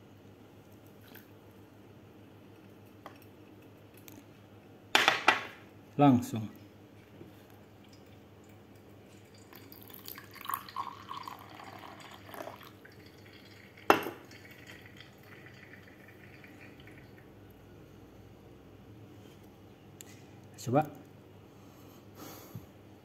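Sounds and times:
coffee pouring into glass: 0:07.8 - 0:17.4
glass clink: 0:13.9 - 0:14.3.

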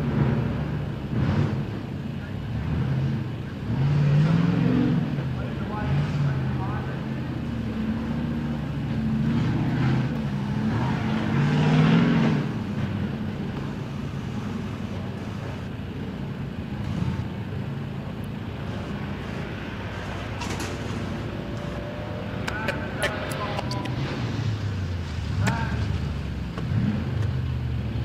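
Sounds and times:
truck engine revving: 0:00.0 - 0:28.0.

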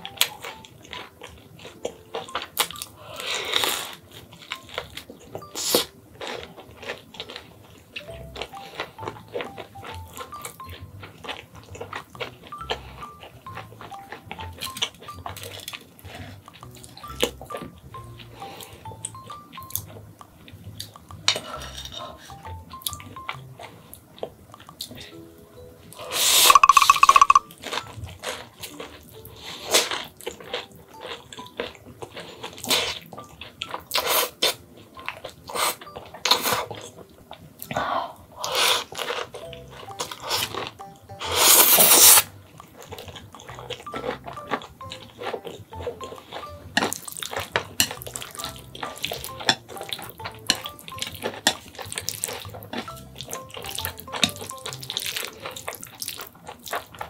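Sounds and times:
wet chewing: 0:00.0 - 0:25.2, 0:26.0 - 0:57.0
noodle slurping: 0:40.2 - 0:43.2.

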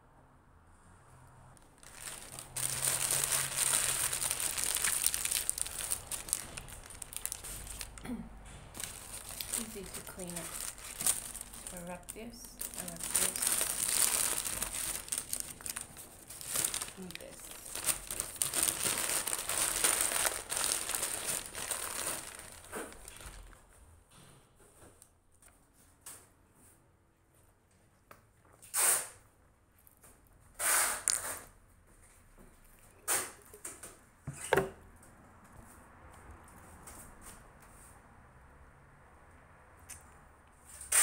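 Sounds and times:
paper wrappers crumpling: 0:01.6 - 0:08.1, 0:08.7 - 0:23.6.

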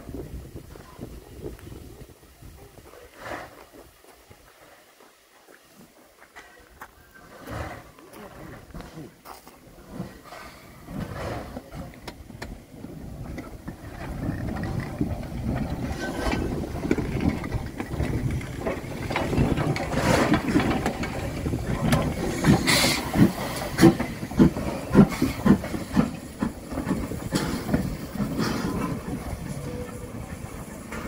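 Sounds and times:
steam locomotive hissing: 0:06.6 - 0:31.0
steam locomotive beats: 0:10.1 - 0:31.0.

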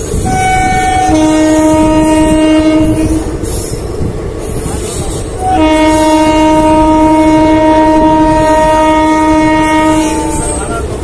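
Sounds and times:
moving train rumble: 0:00.0 - 0:11.0
train horn blast: 0:00.2 - 0:03.4, 0:05.4 - 0:10.7.

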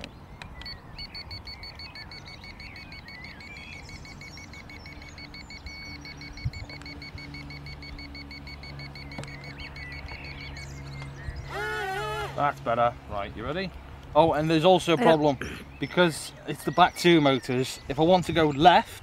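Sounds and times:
birds chirping faintly: 0:00.0 - 0:19.0
low steady hum: 0:00.0 - 0:19.0
rapid electronic beeping: 0:01.0 - 0:10.7.

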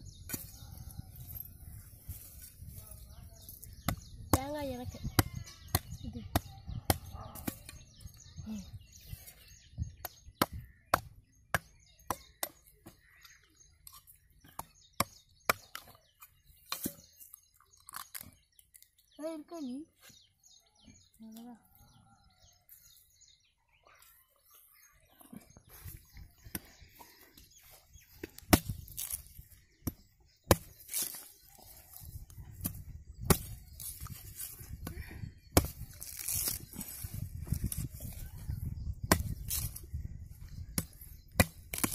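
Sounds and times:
machete chopping coconut husk: 0:10.0 - 0:13.0, 0:28.3 - 0:38.2, 0:39.0 - 0:39.8, 0:40.7 - 0:41.9.

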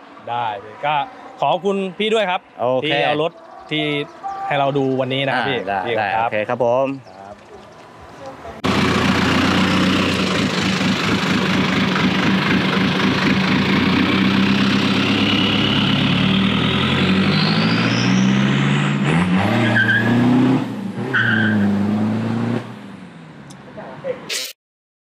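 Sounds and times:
vehicle engine revving: 0:07.0 - 0:23.7.

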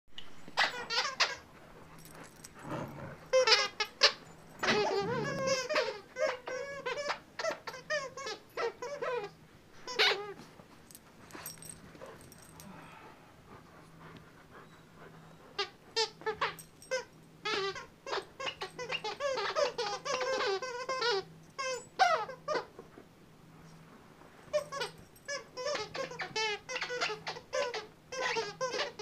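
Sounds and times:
squeaky toy squeaking: 0:00.5 - 0:02.1, 0:02.7 - 0:10.4, 0:15.6 - 0:22.7, 0:24.5 - 0:29.0.

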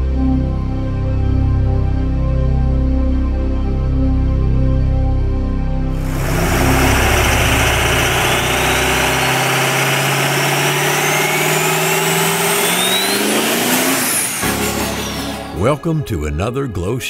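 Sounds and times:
engine revving up: 0:06.0 - 0:15.6
high rising whistle: 0:06.0 - 0:15.7.

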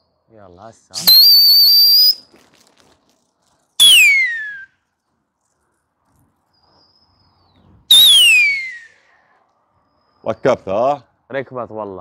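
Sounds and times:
loud falling human whistle: 0:01.0 - 0:02.2, 0:03.8 - 0:04.7, 0:07.9 - 0:09.0.

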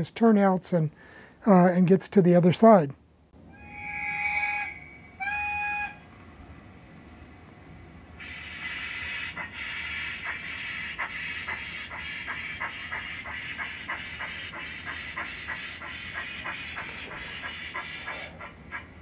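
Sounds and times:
steam locomotive exhaust chuffs: 0:08.2 - 0:19.0.

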